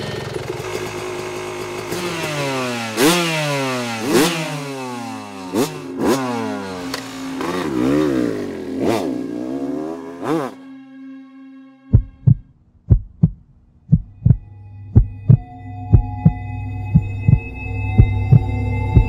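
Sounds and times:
dirt bike engine revving: 0.0s - 10.6s.

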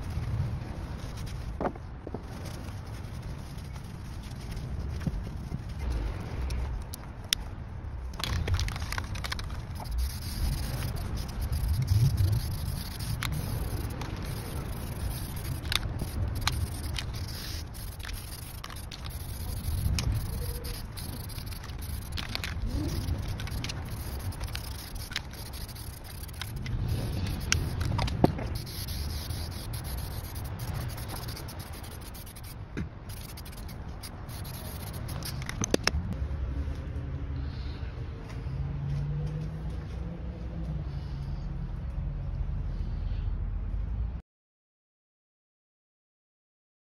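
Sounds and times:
spray can being shaken: 8.1s - 35.9s
spray paint hissing: 8.1s - 35.9s.

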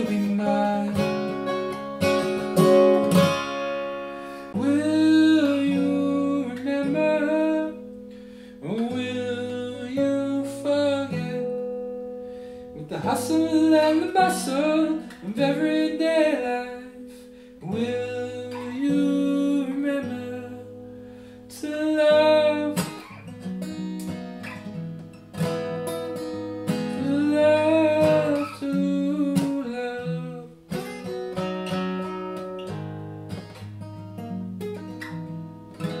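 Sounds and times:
man singing: 0.0s - 1.7s, 4.6s - 7.9s, 8.6s - 11.7s, 12.7s - 20.8s, 21.5s - 23.2s, 26.7s - 30.6s
acoustic guitar strumming: 0.0s - 36.0s.

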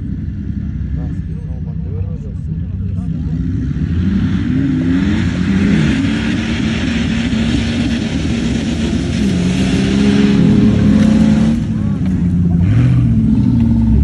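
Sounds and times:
engines accelerating hard: 0.0s - 14.0s.

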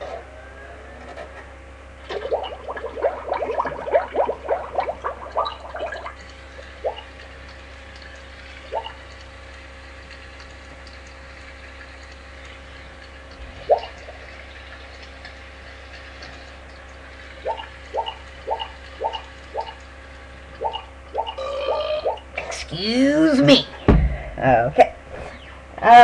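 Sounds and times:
steady low hum: 0.0s - 26.0s
bubbling glugs of drinking: 2.0s - 22.4s.

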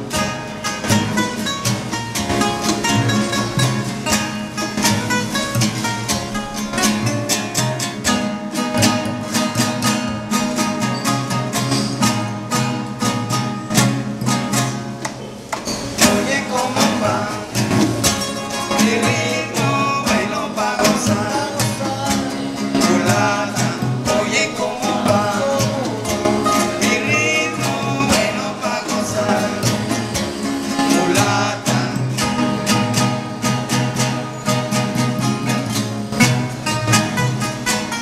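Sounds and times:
acoustic guitars strumming: 0.0s - 38.0s
men singing: 16.0s - 33.9s.

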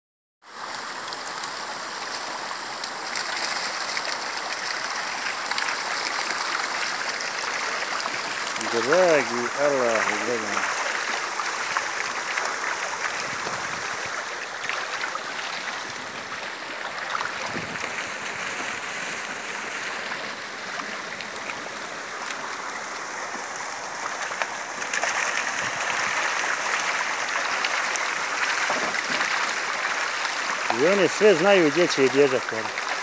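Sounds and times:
water rushing and splashing: 0.5s - 33.0s.

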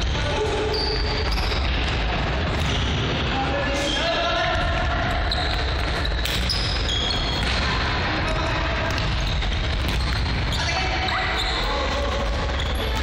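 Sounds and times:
players' voices: 0.0s - 13.0s
shoes squeaking: 5.1s - 7.6s, 9.0s - 13.0s.

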